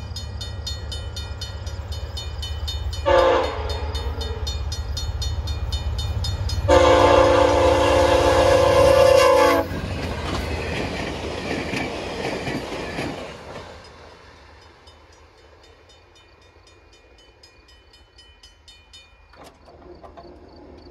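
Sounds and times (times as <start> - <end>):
train rumble and wheel clatter: 0.0 - 20.9
locomotive horn blast: 3.0 - 4.5, 6.7 - 9.7.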